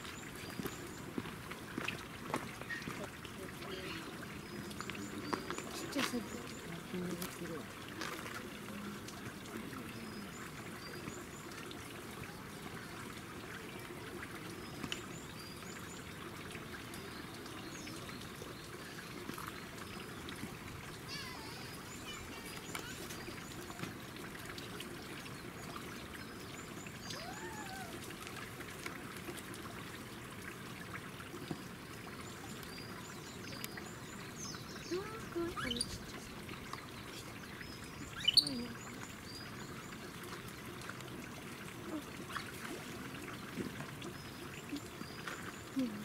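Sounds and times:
running water trickling: 0.0s - 46.0s
bird chirps: 37.1s - 39.5s.

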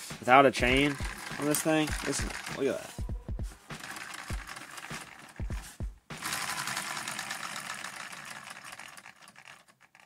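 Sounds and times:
toy engine plastic clatter: 0.8s - 2.7s, 3.8s - 5.5s, 6.2s - 10.0s.

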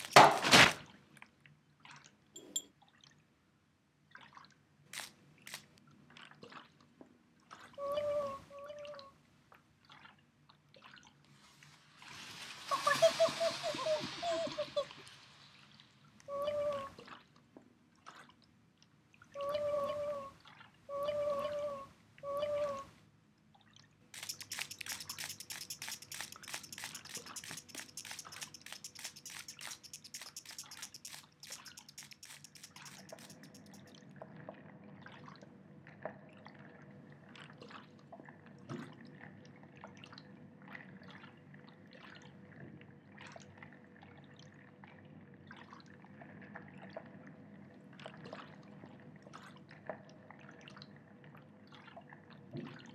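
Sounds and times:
water drips and plops: 4.1s - 7.8s, 8.7s - 11.4s, 17.0s - 19.3s, 23.4s - 36.7s, 37.3s - 47.2s, 48.0s - 52.9s.

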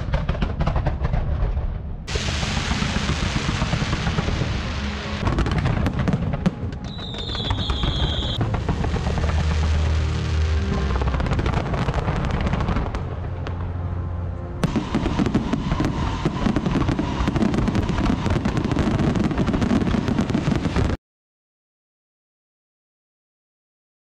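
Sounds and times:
fireworks bursting and crackling: 0.0s - 13.7s, 14.6s - 21.0s
music playing: 2.2s - 16.0s.

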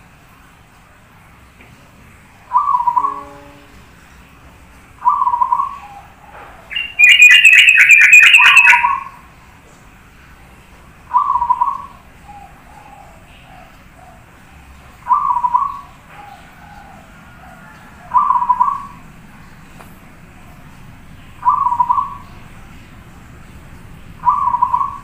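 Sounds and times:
dove cooing: 2.5s - 3.6s, 5.0s - 9.2s, 11.1s - 19.1s, 21.4s - 22.4s, 24.2s - 25.0s.

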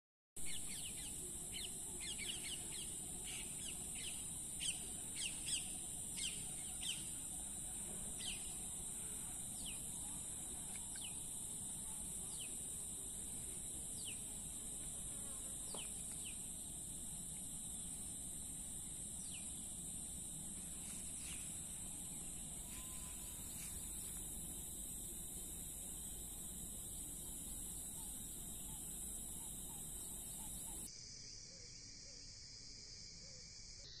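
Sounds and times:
high-pitched insect drone: 15.2s - 34.0s.

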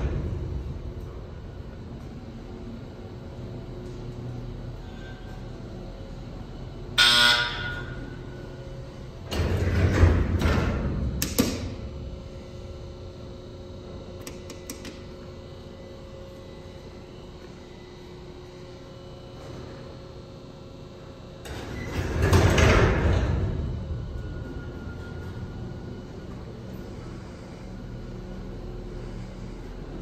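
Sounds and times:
elevator doors rumbling: 0.0s - 7.0s, 7.8s - 12.7s, 21.4s - 30.0s
machine hum: 0.0s - 30.0s
elevator chime: 7.0s - 8.1s.

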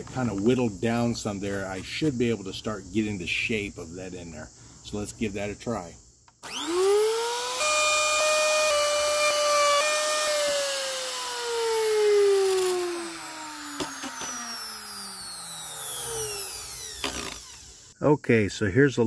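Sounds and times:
router motor whine: 6.4s - 18.0s.

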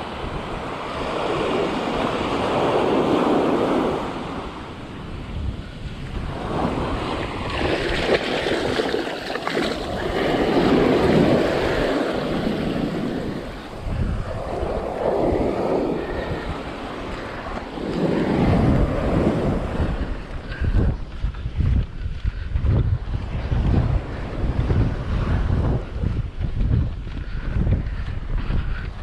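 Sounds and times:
ocean surf on beach: 0.0s - 21.3s.

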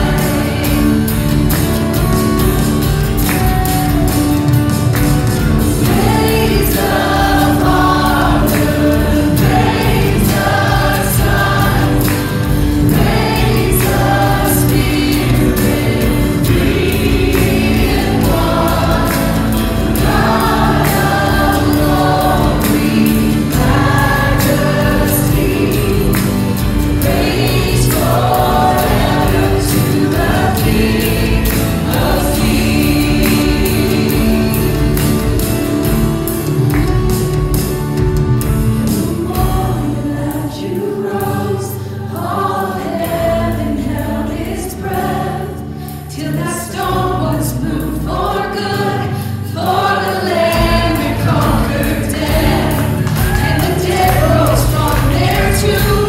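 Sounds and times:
many voices singing: 0.0s - 56.0s
worship band playing a hymn: 0.0s - 56.0s.

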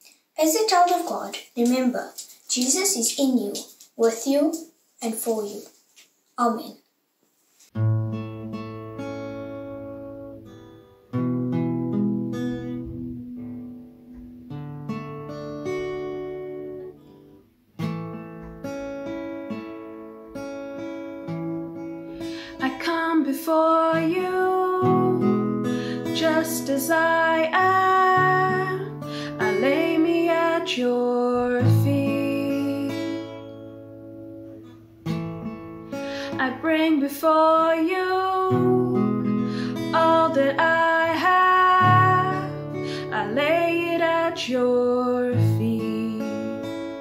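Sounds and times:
acoustic guitar chords: 7.7s - 47.0s
woman singing: 22.6s - 33.4s, 36.3s - 46.9s.

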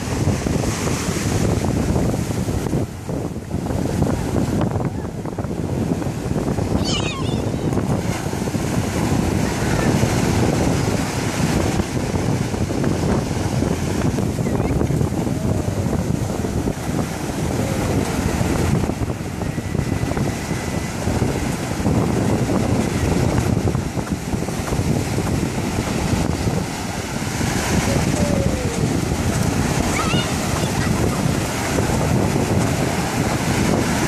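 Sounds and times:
ocean surf breaking: 0.0s - 34.0s
wind buffeting microphone: 0.0s - 34.0s.

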